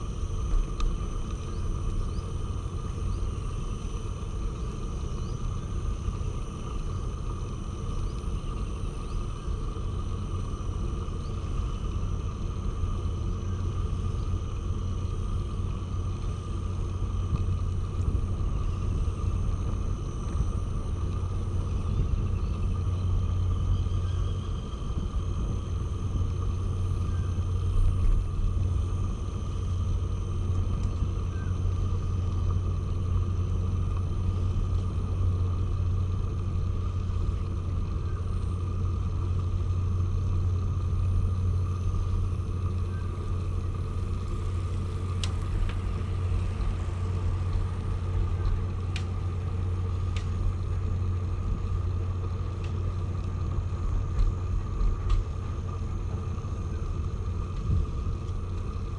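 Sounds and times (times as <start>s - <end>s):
wind buffeting the microphone: 13.8s - 41.6s
faint clicks: 48.4s - 49.2s.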